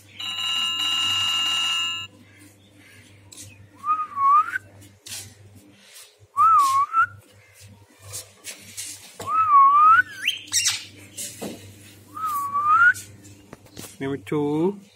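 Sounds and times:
mobile phone ringtone: 0.2 - 2.1.

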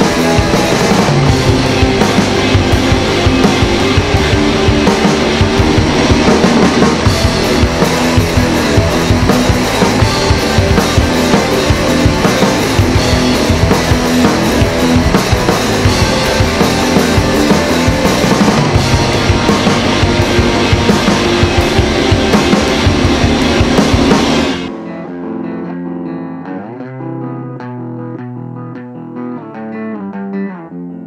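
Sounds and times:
drum kit: 0.0 - 25.1
electric guitar: 0.0 - 31.0.

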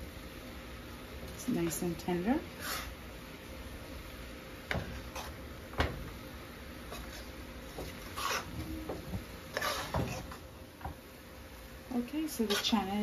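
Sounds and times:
spoon stirring thick food in pot: 6.8 - 11.0
spoon scraping pot: 6.9 - 10.5, 12.4 - 12.9.

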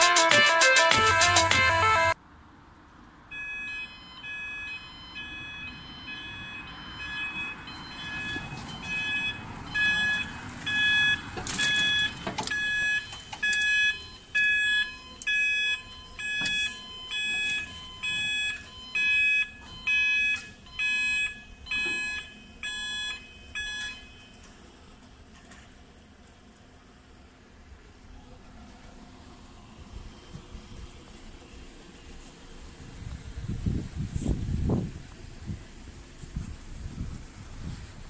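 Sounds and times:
level crossing alarm pulses: 0.0 - 2.2, 3.3 - 24.6.

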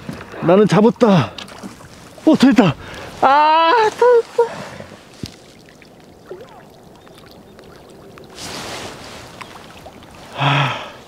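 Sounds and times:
water splashing: 0.0 - 11.0.

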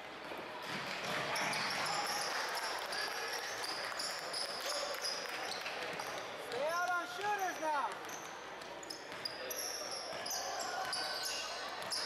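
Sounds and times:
sneakers squeaking on hardwood: 8.0 - 12.0.

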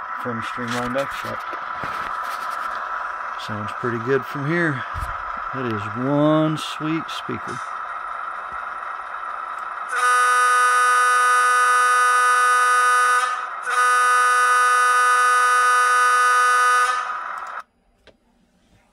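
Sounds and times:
model train diesel engine sound: 0.0 - 17.7
model train air horn blasts: 9.9 - 17.3.

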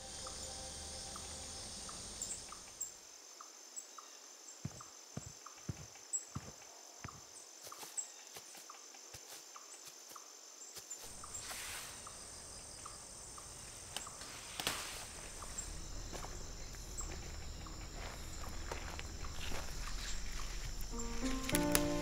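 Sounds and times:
insects trilling: 0.0 - 22.0
low rumble: 14.9 - 21.6.

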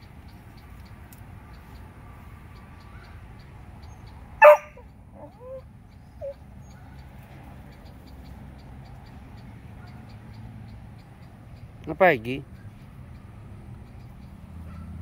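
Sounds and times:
dog barking: 4.4 - 5.6
dog whining: 4.4 - 5.6, 6.2 - 6.4.

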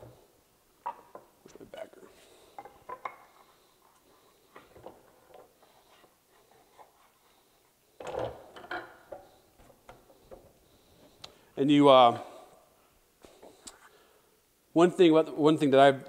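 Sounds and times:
tools tapping on wooden workbench: 2.6 - 3.3.

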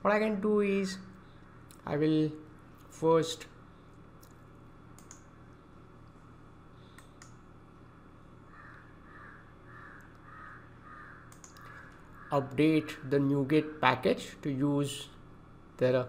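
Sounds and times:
low room hum: 0.0 - 16.0
computer mouse clicks: 4.2 - 5.3, 6.9 - 7.4, 11.3 - 12.0.

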